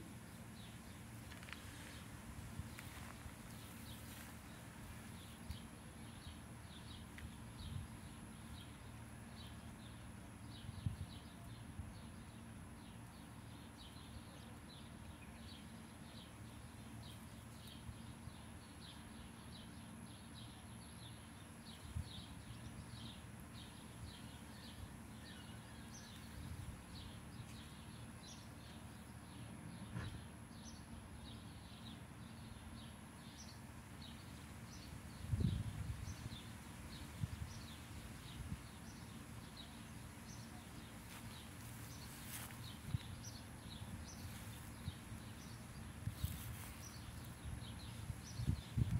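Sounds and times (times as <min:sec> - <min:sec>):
low outdoor rumble: 0:00.0 - 0:48.9
small bird chirping: 0:12.9 - 0:48.9.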